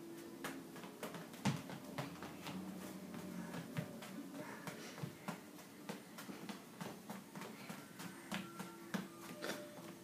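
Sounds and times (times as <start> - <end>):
bare footsteps on wooden floor: 0.0 - 10.0.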